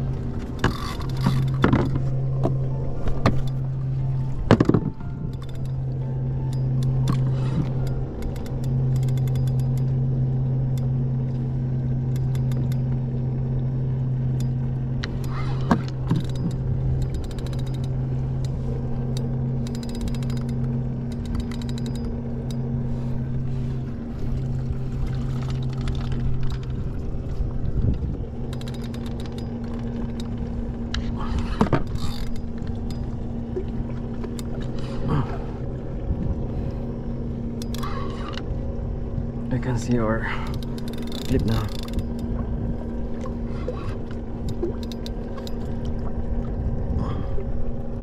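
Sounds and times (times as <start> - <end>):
electric motor hum: 0.0 - 48.0
fishing reel clicks and knocks: 0.4 - 2.6, 4.5 - 10.0, 12.1 - 13.0, 14.3 - 22.6, 25.3 - 26.9, 27.9 - 33.3, 34.2 - 34.8, 37.6 - 38.5, 39.8 - 42.4, 43.9 - 45.9.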